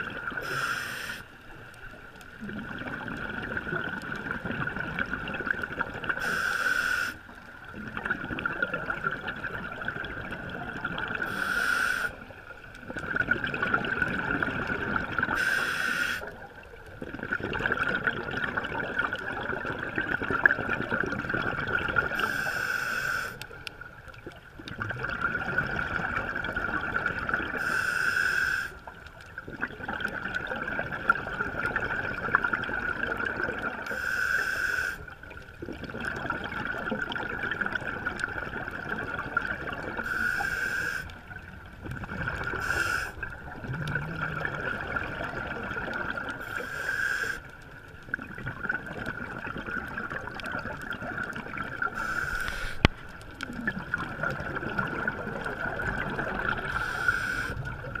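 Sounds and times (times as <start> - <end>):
diver breathing through regulator: 0.4 - 1.3, 6.2 - 7.2, 11.3 - 12.2, 15.4 - 16.3, 22.2 - 23.4, 27.6 - 28.8, 33.9 - 35.0, 40.0 - 41.1, 42.5 - 43.2, 46.4 - 47.5, 51.9 - 53.0, 56.7 - 57.7
bubbling exhalation: 41.8 - 46.4, 53.4 - 56.9.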